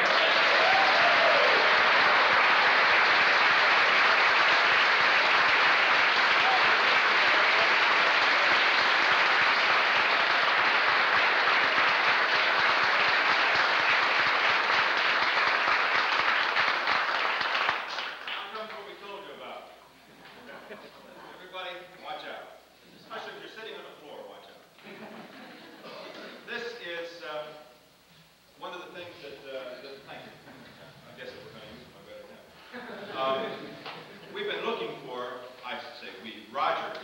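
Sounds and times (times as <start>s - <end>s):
audience applauding: 0.0s - 19.1s.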